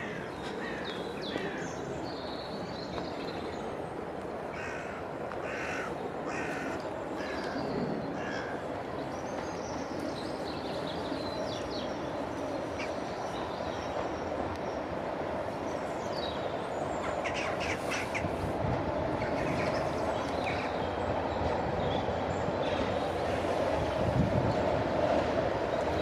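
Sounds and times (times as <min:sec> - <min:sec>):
distant diesel locomotive rumble: 0:00.0 - 0:26.0
crow cawing: 0:04.5 - 0:07.5.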